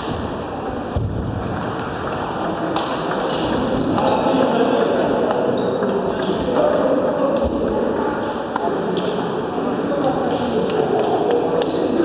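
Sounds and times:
background hubbub: 0:00.0 - 0:12.0
table tennis balls clicking: 0:01.6 - 0:03.7.

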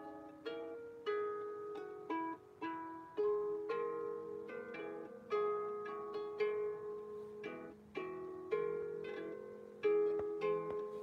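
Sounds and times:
out-of-tune harp plucked: 0:00.0 - 0:11.0.

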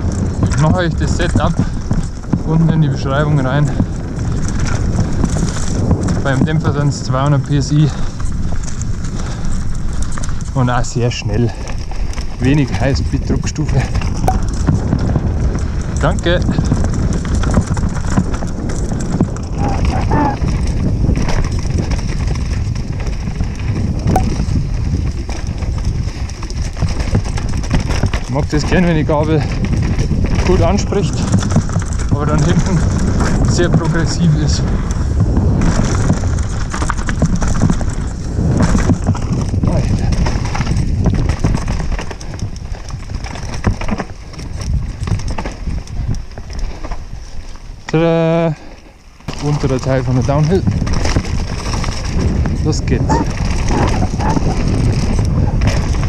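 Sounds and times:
bike knocks and rattles: 0:00.0 - 0:56.0
bike tyres rumbling over ground: 0:00.0 - 0:56.0.

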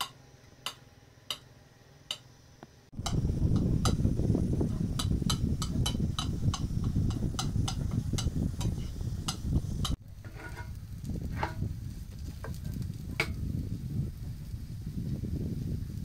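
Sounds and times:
wooden spatula scraping frying pan: 0:06.8 - 0:12.8.

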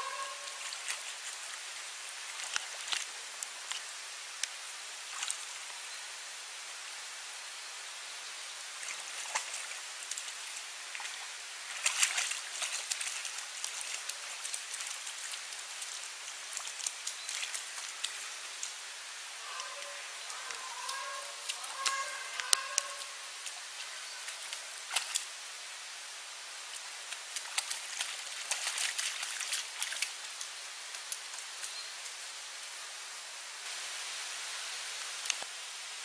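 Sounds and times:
animal splashing in water: 0:00.0 - 0:03.1, 0:08.8 - 0:18.6, 0:19.5 - 0:25.3, 0:26.7 - 0:30.4
shallow water trickling: 0:08.8 - 0:25.4, 0:26.6 - 0:32.0.

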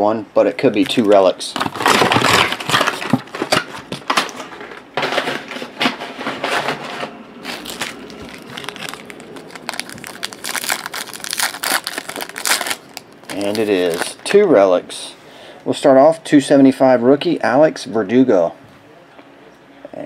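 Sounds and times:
foil wrapper crinkling: 0:00.7 - 0:05.6, 0:07.4 - 0:14.2.

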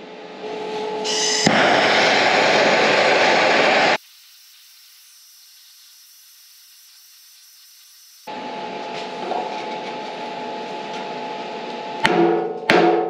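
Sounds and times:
gas torch hissing: 0:01.1 - 0:08.3.

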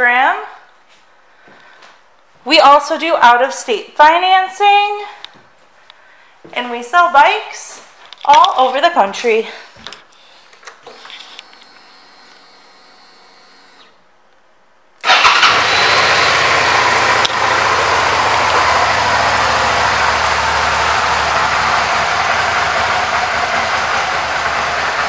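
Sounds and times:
motorcycle engine idling: 0:15.1 - 0:25.0.

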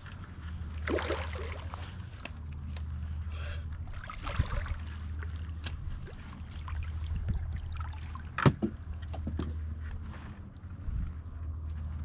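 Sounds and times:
steady low hum: 0:00.0 - 0:12.0
fish splashing at surface: 0:00.8 - 0:01.8.

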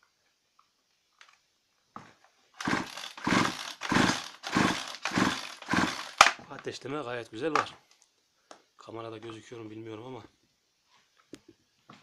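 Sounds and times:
chainsaw starter cord pulls: 0:02.6 - 0:06.5.

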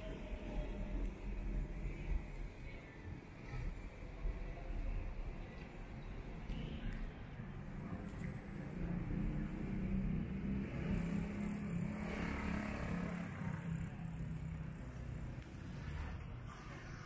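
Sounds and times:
street noise: 0:00.0 - 0:17.0.

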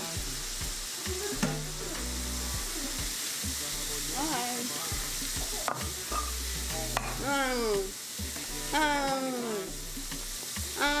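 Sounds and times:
food sizzling in a pan: 0:00.0 - 0:11.0
music with bass line: 0:00.0 - 0:11.0.

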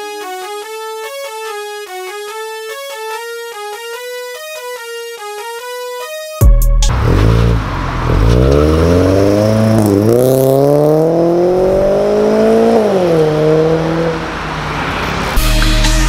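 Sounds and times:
car engine accelerating hard: 0:06.9 - 0:16.0.

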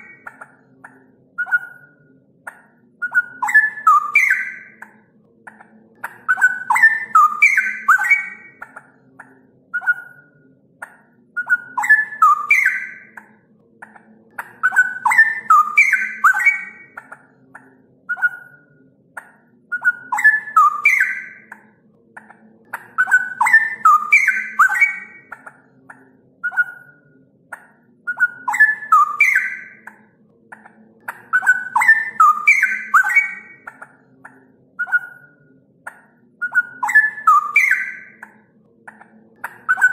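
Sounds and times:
bird singing bubbling whistles: 0:03.0 - 0:04.8, 0:28.1 - 0:29.8, 0:36.4 - 0:38.2.

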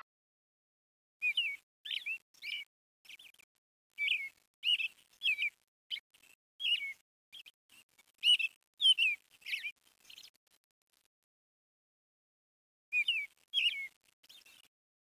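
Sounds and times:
bird chirping: 0:01.2 - 0:10.6, 0:12.9 - 0:14.7.

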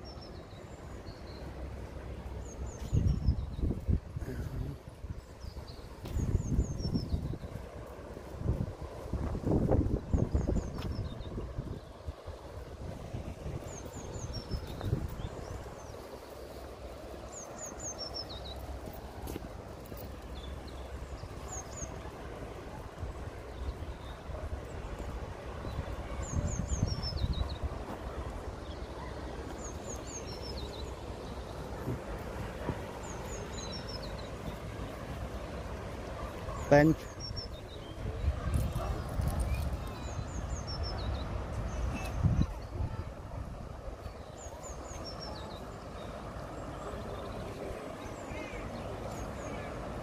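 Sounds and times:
small bird singing: 0:02.4 - 0:07.7, 0:13.4 - 0:19.1, 0:25.0 - 0:31.8, 0:33.0 - 0:34.7, 0:36.4 - 0:42.8
fast-flowing river rushing: 0:11.4 - 0:42.4.

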